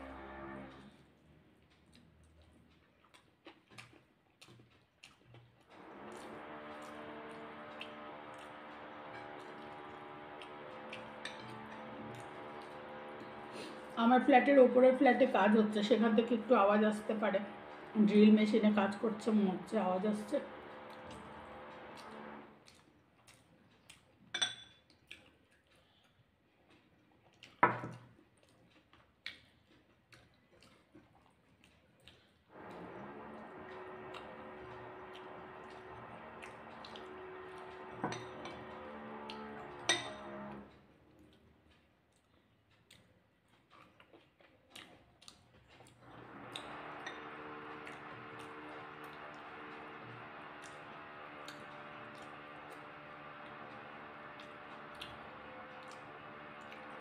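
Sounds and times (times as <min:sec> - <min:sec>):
eating from a plate: 0:00.0 - 0:14.0, 0:20.5 - 0:57.0
electric drill running: 0:05.8 - 0:14.0, 0:15.8 - 0:22.6, 0:32.5 - 0:40.8, 0:46.0 - 0:57.0
clinks of eating from a plate: 0:24.3 - 0:24.9.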